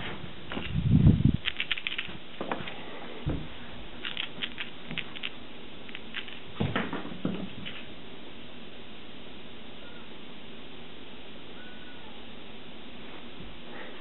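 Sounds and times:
claws clicking on floor: 0:01.4 - 0:02.8, 0:04.0 - 0:07.9.

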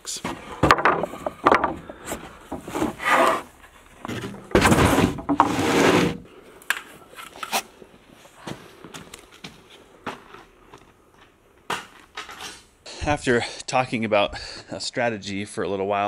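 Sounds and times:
wood knocking on wood: 0:00.3 - 0:02.9
board scraping across boards: 0:00.3 - 0:06.3.

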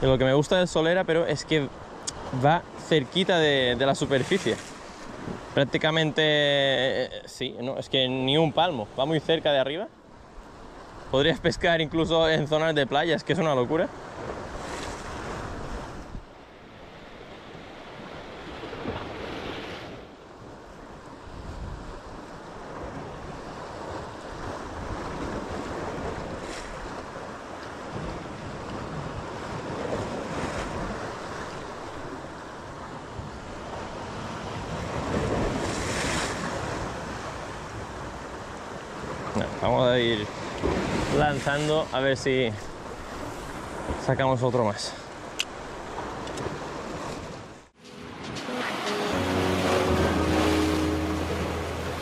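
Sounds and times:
wind buffeting microphone: 0:21.2 - 0:27.3.

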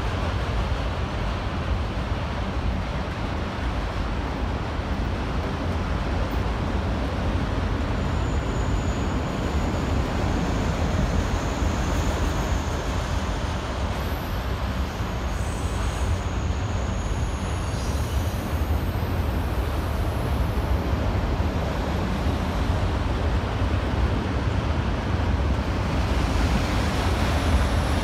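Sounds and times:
freight train rumbling past: 0:00.0 - 0:28.0
faint high squeal: 0:07.9 - 0:20.2.

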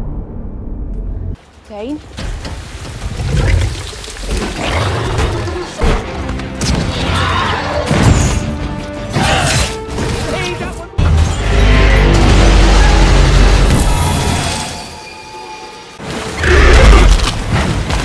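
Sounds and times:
dramatic music: 0:04.7 - 0:18.0.

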